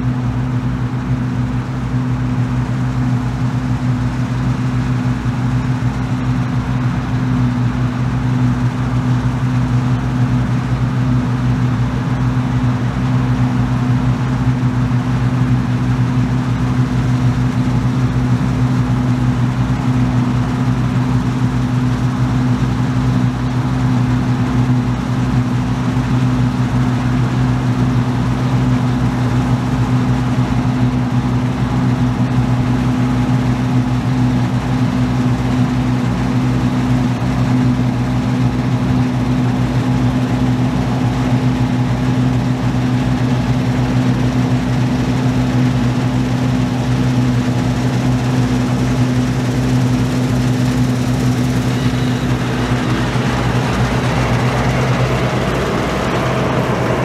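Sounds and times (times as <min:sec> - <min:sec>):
combine harvester running: 0:00.0 - 0:57.0
regular low pulse: 0:50.1 - 0:57.0.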